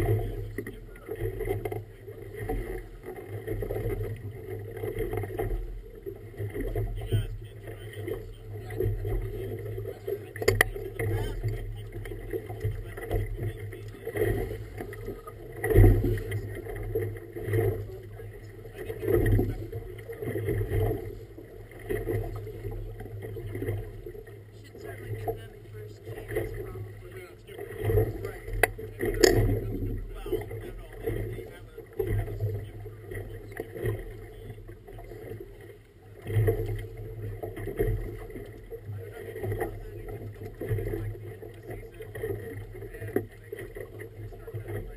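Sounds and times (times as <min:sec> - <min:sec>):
motorboat engine running: 0:00.0 - 0:44.9
water splashing against boat hull: 0:00.0 - 0:44.9.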